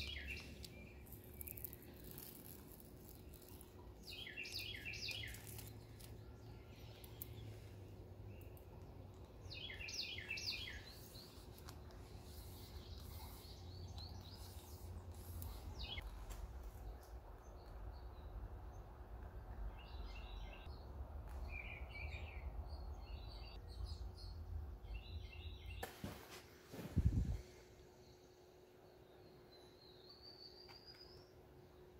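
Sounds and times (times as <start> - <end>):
birds chirping: 0.0 - 2.2, 3.3 - 16.1
low steady background rumble: 0.0 - 25.8.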